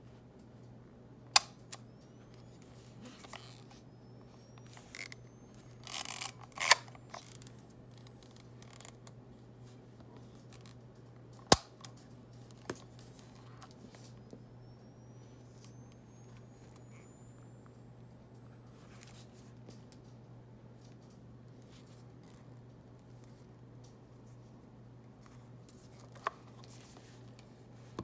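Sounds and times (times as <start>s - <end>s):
faint low hum: 0.0s - 28.0s
camera handling rustle: 4.6s - 9.0s
sharp camera clicks: 5.8s - 7.5s.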